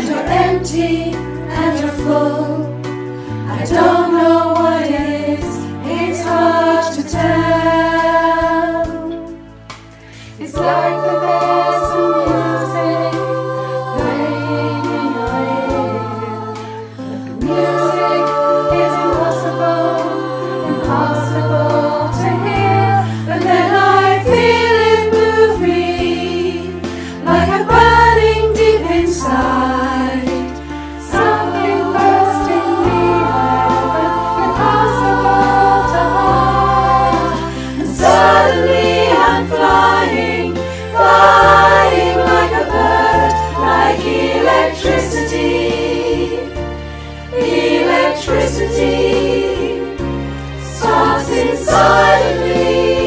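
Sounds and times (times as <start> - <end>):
female choir singing: 0.0 - 9.4, 10.2 - 53.0.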